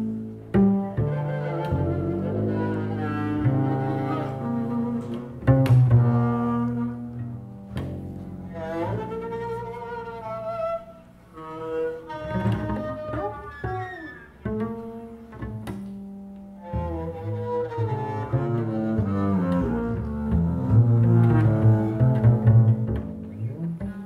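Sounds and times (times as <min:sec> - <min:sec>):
double basses improvising: 0:00.0 - 0:24.0.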